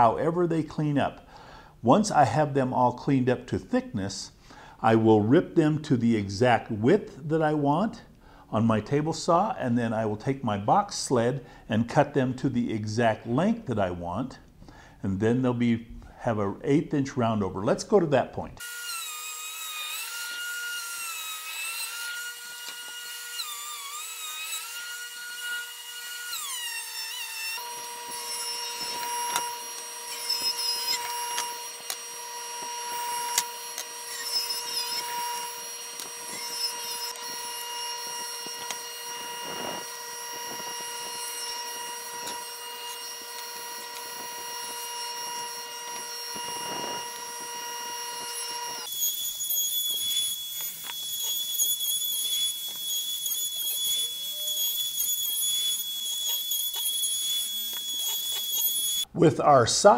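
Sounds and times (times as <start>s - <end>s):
table saw running: 18.6s - 59.1s
thickness planer motor whining: 18.6s - 59.1s.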